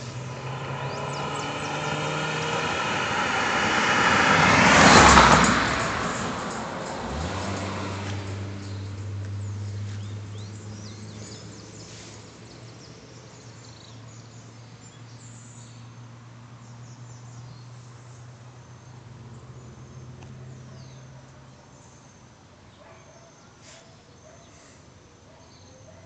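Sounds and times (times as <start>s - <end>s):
birds chirping: 0.0s - 15.9s
vehicle: 0.0s - 26.0s.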